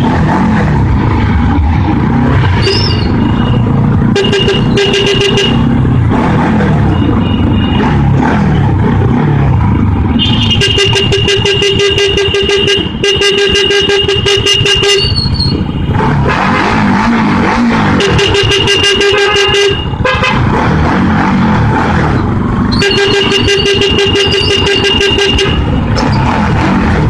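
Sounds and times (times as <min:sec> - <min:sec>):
motorcycle engine: 0:00.0 - 0:27.0
vehicle horn blasts: 0:03.3 - 0:05.8, 0:10.2 - 0:15.8, 0:18.0 - 0:20.5, 0:22.7 - 0:25.9.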